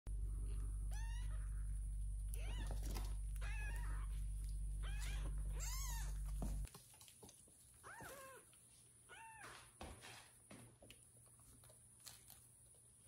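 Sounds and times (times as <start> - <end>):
low hum: 0.1 - 6.7
kitten meowing: 0.9 - 1.6, 2.3 - 4.2, 4.8 - 6.2.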